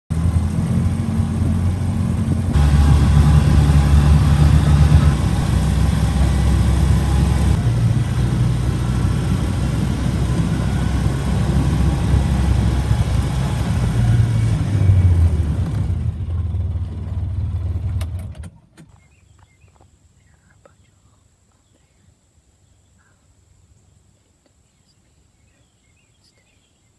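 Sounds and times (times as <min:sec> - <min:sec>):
vehicle engine running: 0:00.1 - 0:18.4.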